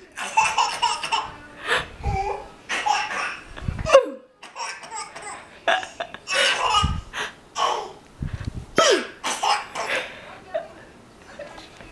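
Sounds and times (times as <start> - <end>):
toddler girl giggling: 2.0 - 7.0.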